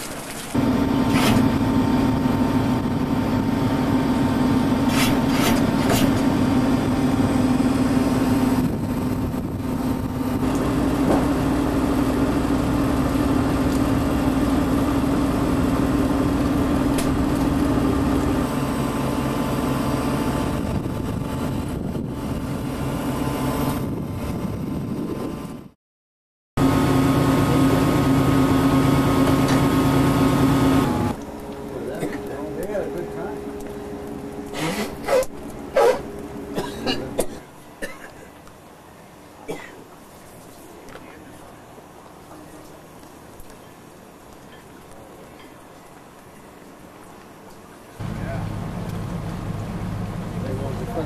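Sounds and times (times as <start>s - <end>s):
boat engine idling: 5.6s - 21.2s, 48.0s - 51.0s.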